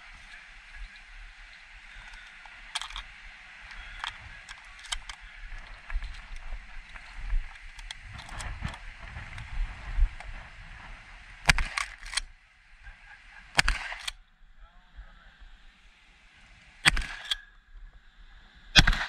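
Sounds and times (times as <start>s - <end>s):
steady rushing noise: 0.0s - 17.4s
shotgun shots: 11.5s - 12.2s, 13.5s - 14.1s, 16.8s - 17.4s, 18.8s - 19.0s.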